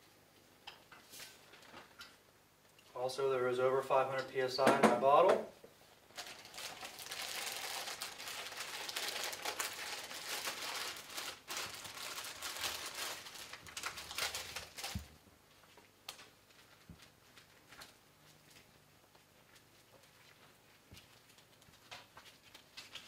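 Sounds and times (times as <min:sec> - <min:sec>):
plastic crinkling and rustling: 0:01.0 - 0:02.2, 0:06.0 - 0:23.0.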